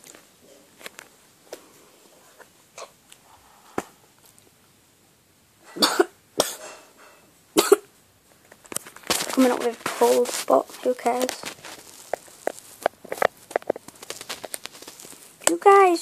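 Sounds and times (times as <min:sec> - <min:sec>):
boy coughing: 0:05.7 - 0:06.7, 0:07.6 - 0:07.9.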